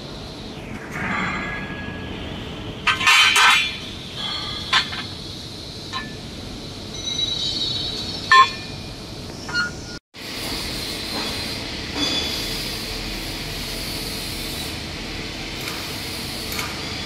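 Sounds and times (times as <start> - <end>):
steady machine hum: 0.0 - 17.0
metal clanking and knocking: 2.9 - 3.8.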